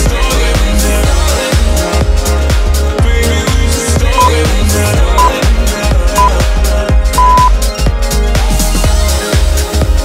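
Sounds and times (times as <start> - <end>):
timer beep: 4.1 - 4.4, 5.2 - 5.4, 6.2 - 6.4, 7.2 - 7.5
electronic dance music: 7.1 - 8.0.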